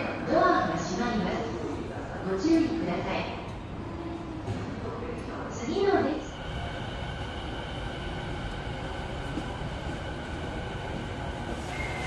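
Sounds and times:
train interior rumble: 0:03.5 - 0:12.0.

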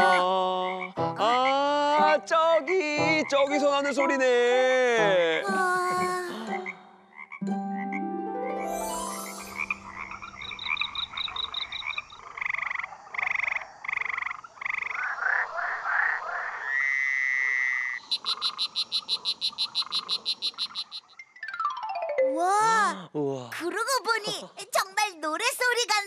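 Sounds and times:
frogs croaking: 0:00.0 - 0:01.7, 0:05.9 - 0:07.9, 0:08.8 - 0:21.4
frog trilling: 0:09.4 - 0:21.2.

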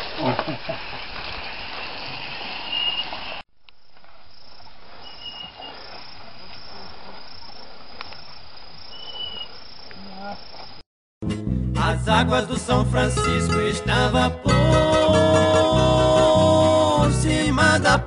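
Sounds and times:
outdoor hiss: 0:00.0 - 0:10.8.

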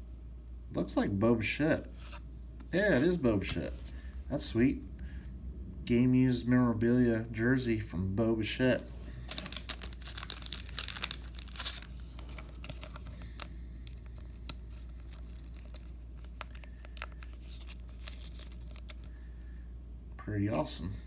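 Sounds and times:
plastic sleeve crinkling: 0:09.2 - 0:19.2.

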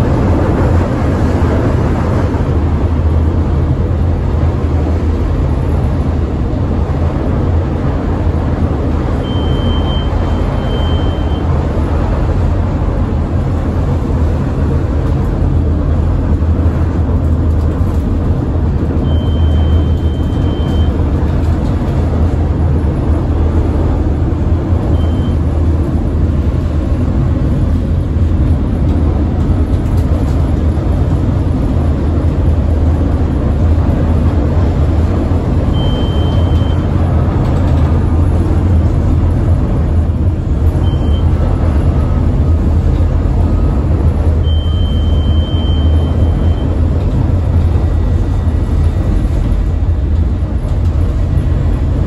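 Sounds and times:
train wheels rumbling on rail: 0:00.0 - 0:52.0
high wheel squeals: 0:09.2 - 0:11.5, 0:44.4 - 0:46.8.

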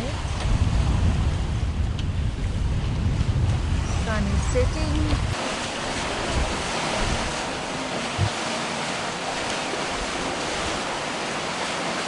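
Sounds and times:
wind on microphone: 0:00.0 - 0:08.5
water rushing and splashing: 0:00.0 - 0:12.0.

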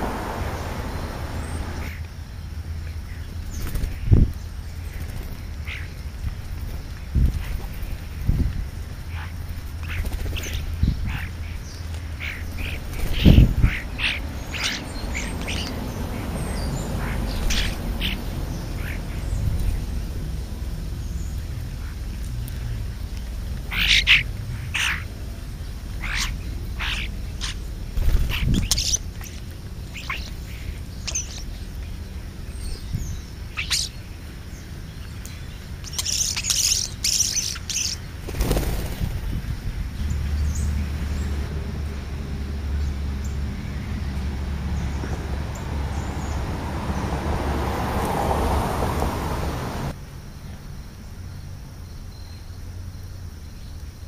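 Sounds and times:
rising hiss: 0:00.0 - 0:01.9
starlings chirping: 0:00.0 - 0:48.6.

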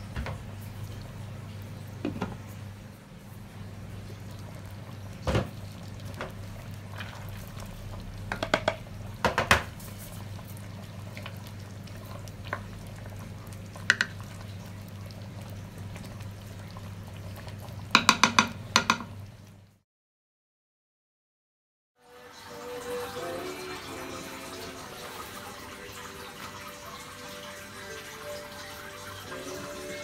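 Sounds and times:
sauce simmering in a pot: 0:00.6 - 0:19.8, 0:22.1 - 0:30.0
glass lid and spoon knocking pot: 0:08.3 - 0:09.6, 0:18.0 - 0:19.1.

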